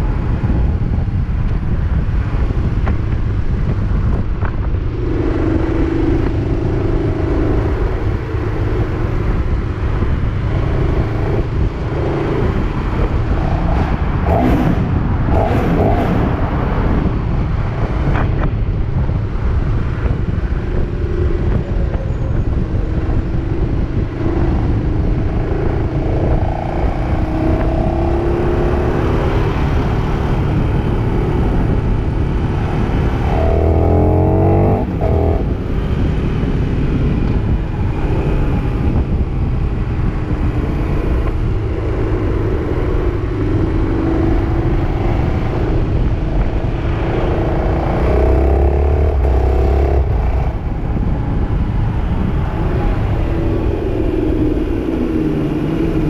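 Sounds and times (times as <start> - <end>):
motorcycle engine running: 0.0 - 15.7
wind noise on microphone: 0.0 - 56.0.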